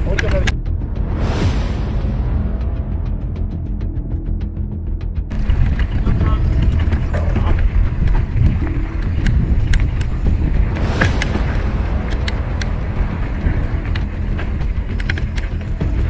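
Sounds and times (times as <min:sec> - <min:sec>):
wind and tyres rumbling: 0:00.0 - 0:01.1, 0:05.3 - 0:16.0
bike clicks and rattles: 0:05.3 - 0:11.4, 0:12.0 - 0:16.0.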